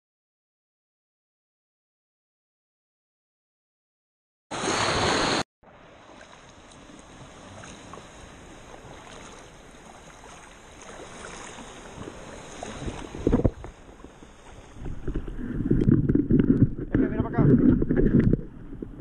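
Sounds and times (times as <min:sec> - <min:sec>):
water lapping and dripping: 0:05.8 - 0:16.9.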